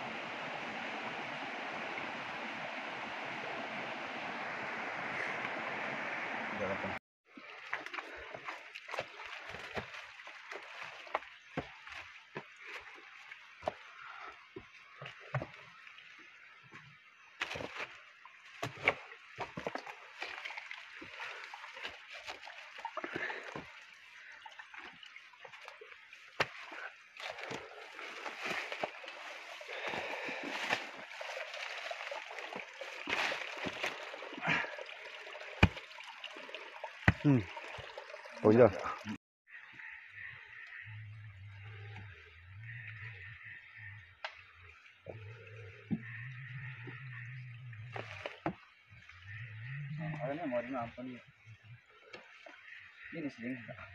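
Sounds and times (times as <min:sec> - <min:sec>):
footsteps through wet undergrowth: 0:07.4 - 0:15.9, 0:16.5 - 0:34.6
leaves and branches brushing: 0:26.4 - 0:34.0.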